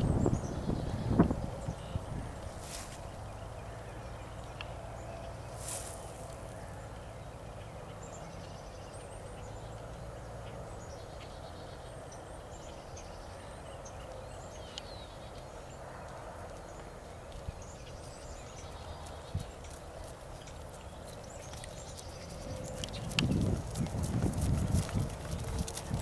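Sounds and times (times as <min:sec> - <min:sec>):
wind rumble on microphone: 0:00.0 - 0:07.2, 0:16.5 - 0:26.0
small birds chirping: 0:00.0 - 0:26.0.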